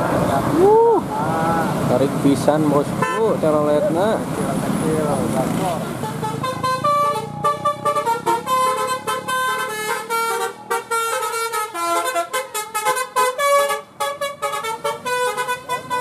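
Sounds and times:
bus horn playing tune: 3.0 - 3.3, 6.0 - 16.0.

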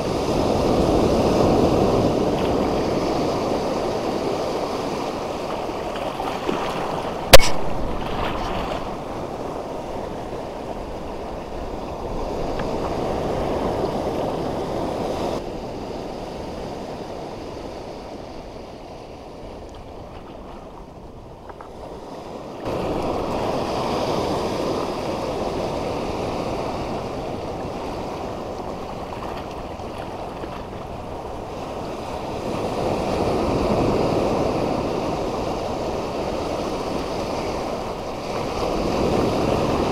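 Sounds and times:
waves breaking over rocks: 0.0 - 39.9
wind on microphone: 0.0 - 39.9
sharp knock: 7.3 - 8.2.

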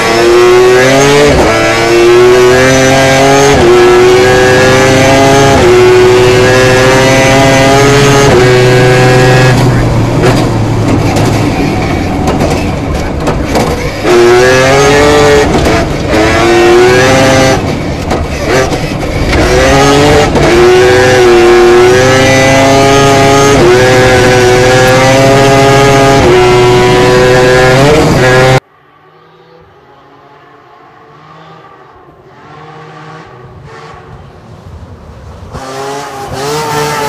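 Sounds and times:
rotary engine at full throttle: 0.0 - 30.4, 35.6 - 37.0.

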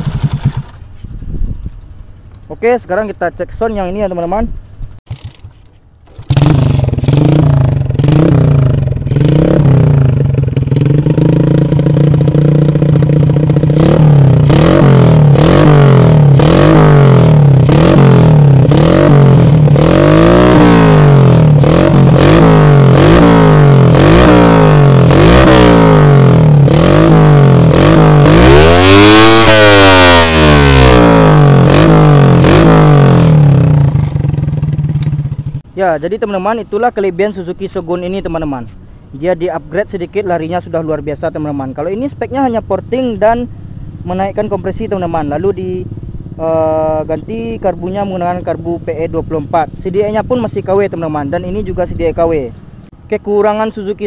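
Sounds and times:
motorcycle engine revving: 0.0 - 1.1, 5.0 - 35.7, 41.3 - 52.8.

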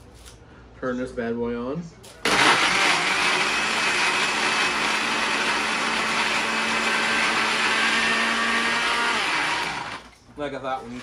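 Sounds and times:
blender motor humming: 2.2 - 10.2.

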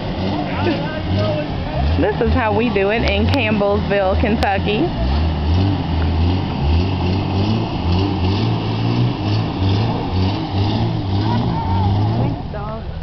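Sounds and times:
car engine revving and labouring: 0.0 - 13.0.

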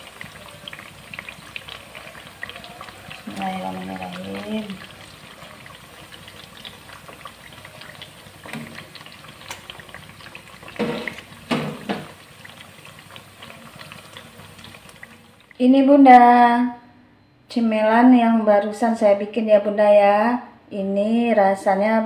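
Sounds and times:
fritters sizzling in hot oil: 0.0 - 15.5.

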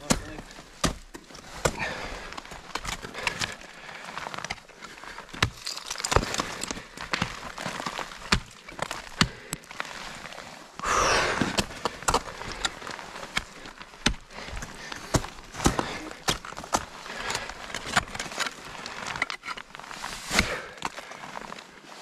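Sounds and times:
ice tools striking ice: 5.3 - 9.4.

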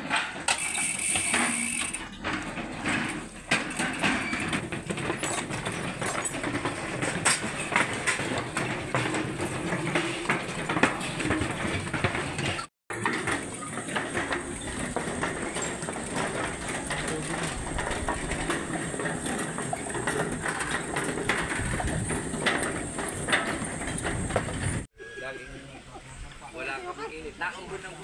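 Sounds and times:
bikes and shoes knocking on boards: 0.0 - 24.9
bike freewheel hubs clicking: 0.5 - 2.1.

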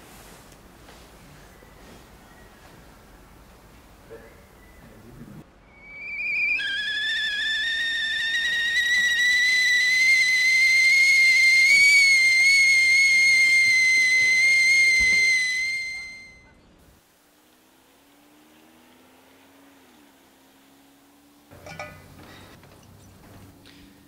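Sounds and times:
high-pitched whistle: 5.6 - 16.6.

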